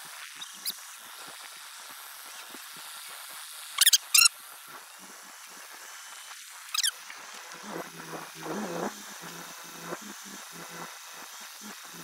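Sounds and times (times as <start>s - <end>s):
high-pitched squeaks: 6.7s - 7.0s.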